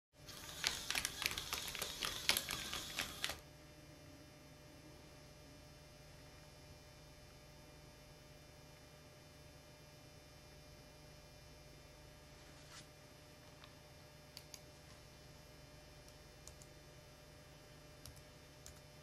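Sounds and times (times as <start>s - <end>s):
faint steady hum: 0.2s - 19.0s
robot motors whirring: 0.3s - 3.4s.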